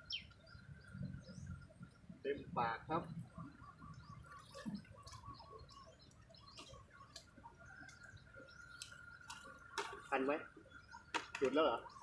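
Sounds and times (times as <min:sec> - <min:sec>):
soft ticks: 0:06.0 - 0:10.0.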